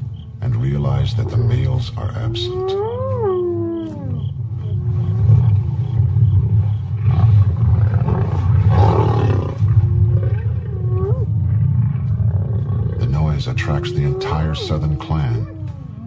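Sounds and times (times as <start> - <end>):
lions growling: 0.5 - 16.0
animals snarling: 1.6 - 16.0
hyenas yelping: 10.2 - 16.0.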